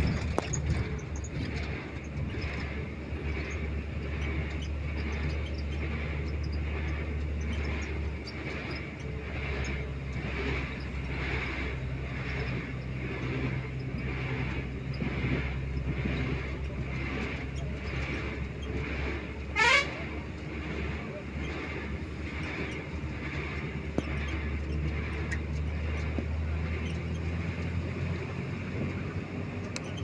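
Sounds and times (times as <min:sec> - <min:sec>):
vehicle engine and tyres droning: 0:00.0 - 0:30.0
loud horn blast: 0:19.5 - 0:20.1.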